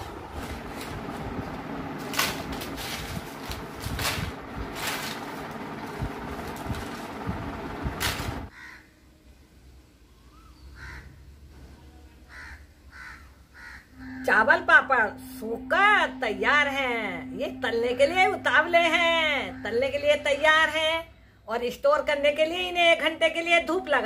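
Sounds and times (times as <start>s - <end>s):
plastic sheeting crinkling: 0.0s - 8.4s
dried papads crackling: 0.0s - 8.5s.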